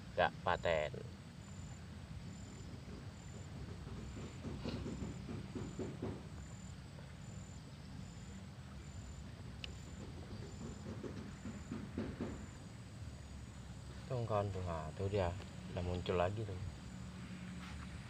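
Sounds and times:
low steady rumble: 0.0s - 4.6s
insect chirping: 0.0s - 18.0s.

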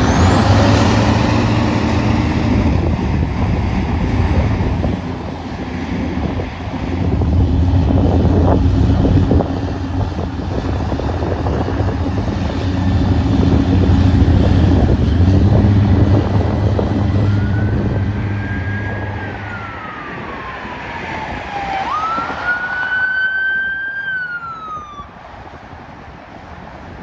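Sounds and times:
deep steady rumble: 0.0s - 20.8s
emergency vehicle siren wailing: 0.0s - 26.7s.

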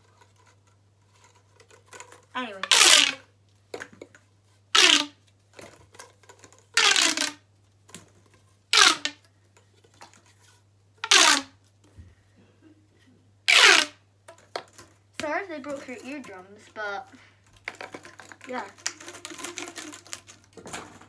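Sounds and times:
plastic pop tube popping: 4.8s - 5.2s, 6.8s - 7.4s, 8.7s - 9.2s, 11.0s - 11.5s, 13.5s - 15.3s.

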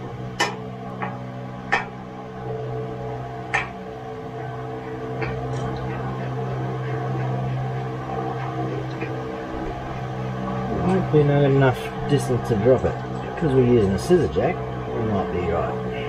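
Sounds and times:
low mechanical hum: 0.0s - 16.0s
sharp clicks and knocks: 0.4s - 2.0s, 3.5s - 3.8s.

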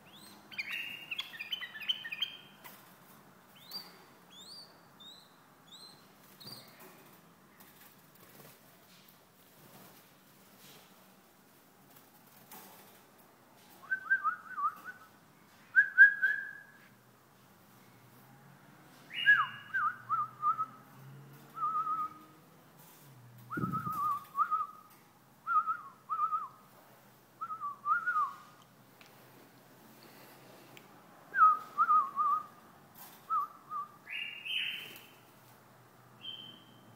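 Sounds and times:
bulbul singing whistled phrases: 0.0s - 2.6s, 3.6s - 6.7s, 19.1s - 20.7s, 23.5s - 24.9s, 33.4s - 35.2s, 36.2s - 36.9s.

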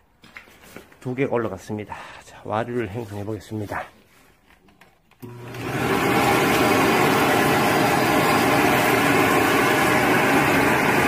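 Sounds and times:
blower motor whirring: 5.2s - 11.0s.

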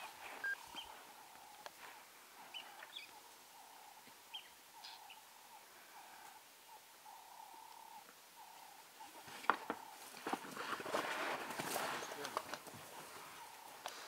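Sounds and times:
faint bird chirps: 0.0s - 1.6s, 2.4s - 10.0s.

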